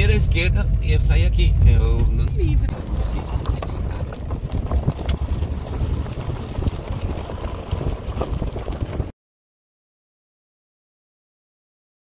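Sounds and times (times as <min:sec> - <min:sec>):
wind buffeting microphone: 0:00.0 - 0:09.1.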